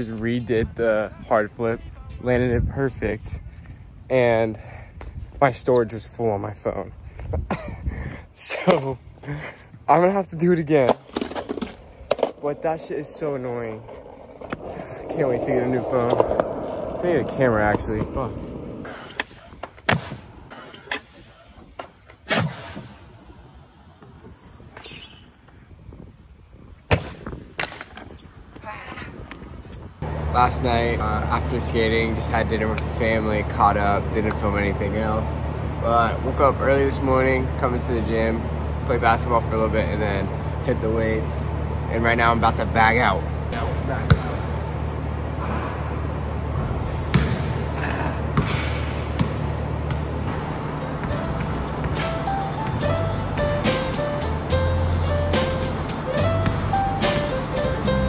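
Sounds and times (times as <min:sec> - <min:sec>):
skateboard wheels rolling: 0:10.8 - 0:26.8
steady low hum: 0:29.1 - 0:58.0.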